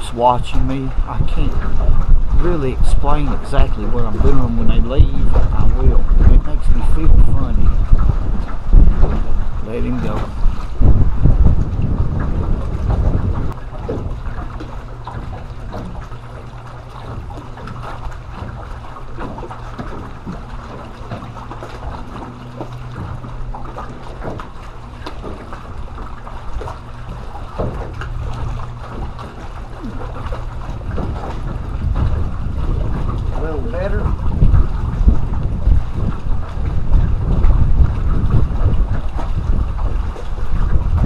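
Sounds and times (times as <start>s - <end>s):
waves lapping against boat hull: 0.0s - 41.0s
wind buffeting microphone: 0.0s - 41.0s.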